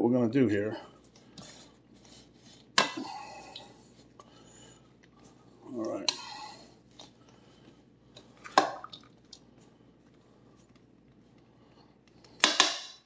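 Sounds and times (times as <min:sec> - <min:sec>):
spoon stirring food in a bowl: 0:01.2 - 0:07.1.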